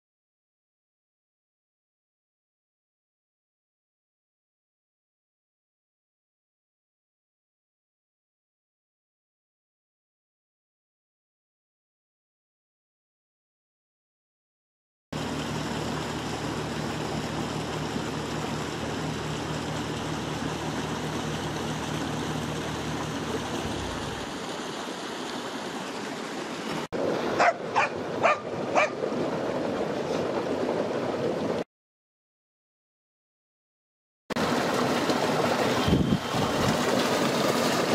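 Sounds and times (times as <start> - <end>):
skid steer engine running: 15.2 - 24.3
creek water rushing: 15.2 - 31.6, 34.4 - 37.9
dog barking: 27.4 - 29.0.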